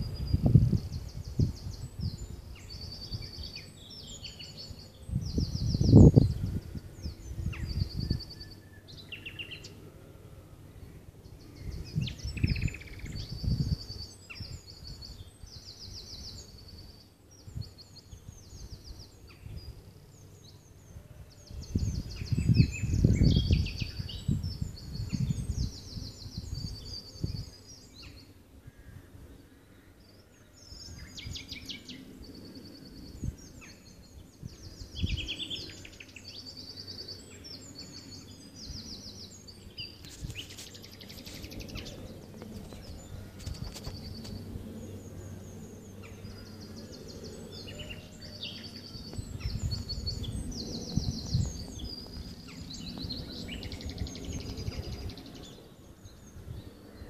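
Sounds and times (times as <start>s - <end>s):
wind buffeting microphone: 0.0s - 29.5s, 30.1s - 57.0s
nightingale singing: 11.2s - 19.7s.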